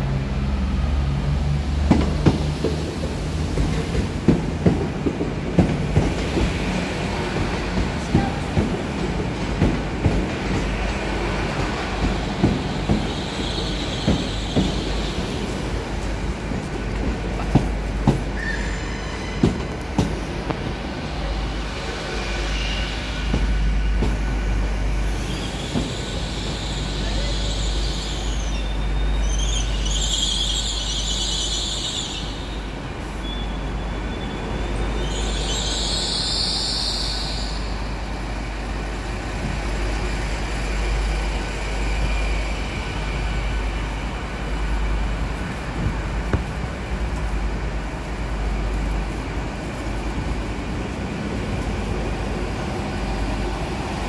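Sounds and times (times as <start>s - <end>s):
train wheels rumbling on rails: 0.0s - 54.0s
high squealing hisses: 18.4s - 19.5s, 25.0s - 32.6s, 33.2s - 37.9s.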